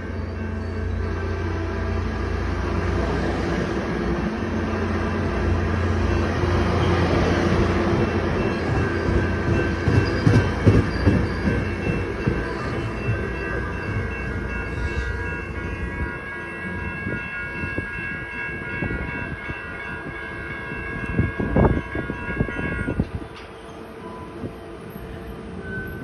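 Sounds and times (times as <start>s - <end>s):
train rumble pulling away: 0.0s - 26.0s
high ringing tones: 4.4s - 26.0s.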